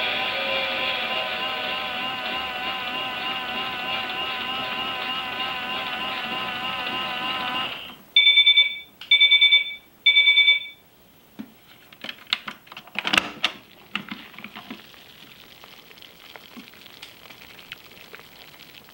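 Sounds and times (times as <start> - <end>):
washing machine electronic beeps: 0.0 - 10.8
clicks and knocks of handling: 11.4 - 14.8.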